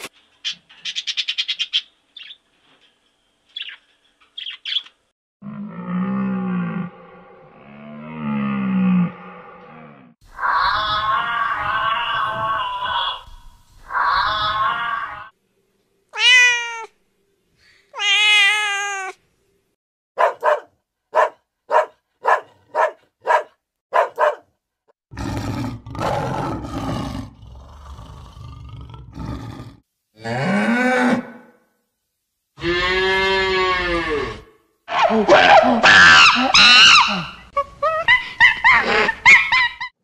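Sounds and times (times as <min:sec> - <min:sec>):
cow mooing: 0:05.4 - 0:10.2, 0:32.6 - 0:34.5
cat meowing: 0:16.2 - 0:17.0, 0:18.0 - 0:19.2
lioness growling and roaring: 0:25.1 - 0:31.2.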